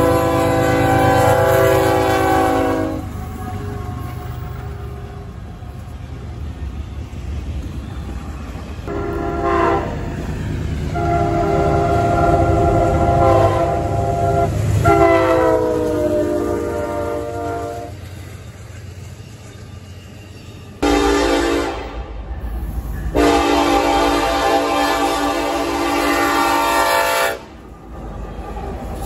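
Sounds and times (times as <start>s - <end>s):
locomotive air horn blasts: 0.0s - 4.2s, 8.9s - 10.1s, 10.9s - 18.0s, 20.8s - 22.1s, 23.1s - 27.6s
train rumbling on rails: 0.0s - 29.0s.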